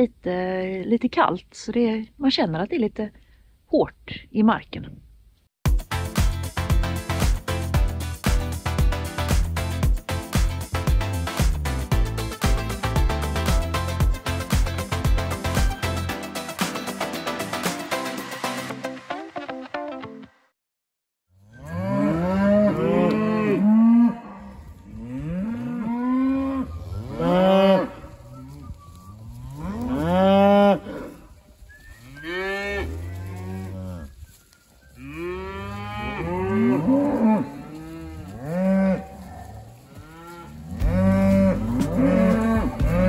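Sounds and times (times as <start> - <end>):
cattle mooing: 21.5 - 28.6, 29.4 - 31.2, 35.0 - 43.0.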